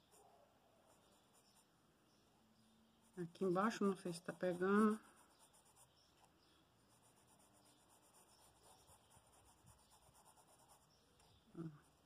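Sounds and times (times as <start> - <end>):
paintbrush scratching on fabric: 3.3 - 6.3, 6.9 - 11.0.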